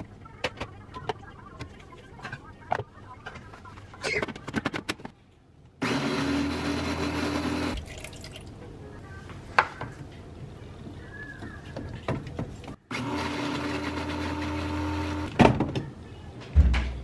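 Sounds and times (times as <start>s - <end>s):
blender running: 5.8s - 7.8s, 12.9s - 15.3s.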